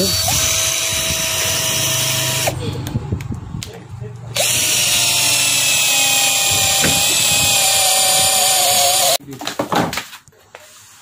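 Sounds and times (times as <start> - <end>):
cordless drill motor whine: 0.0 - 2.6, 4.4 - 9.2.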